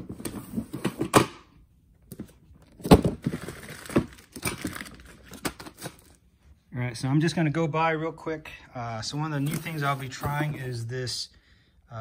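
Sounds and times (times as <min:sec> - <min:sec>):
cardboard packaging rustling: 0:02.1 - 0:06.2, 0:09.4 - 0:10.7.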